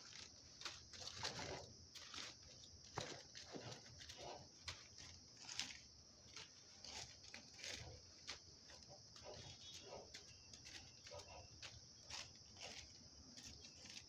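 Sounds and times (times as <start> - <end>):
rustling of plastic bag: 0.0 - 9.9.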